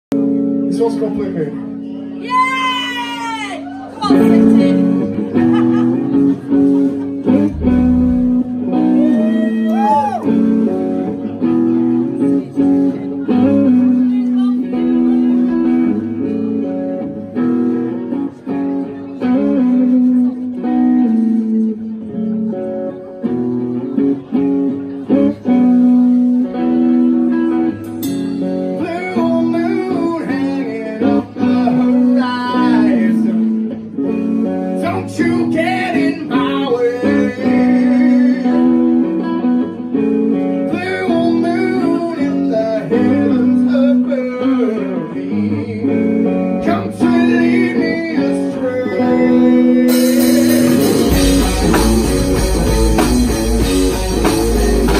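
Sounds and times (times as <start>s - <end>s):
electric guitars: 0.1s - 54.9s
bass guitar: 3.2s - 54.9s
drums: 4.0s - 11.8s, 25.3s - 43.9s, 46.0s - 54.9s
man singing lead vocal: 28.8s - 33.6s, 34.8s - 39.4s, 40.6s - 52.1s, 53.9s - 54.9s.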